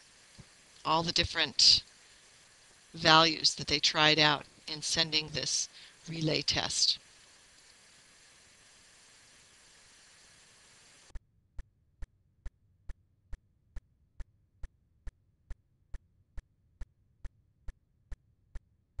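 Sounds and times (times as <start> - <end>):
background hiss: 0.0 - 11.1.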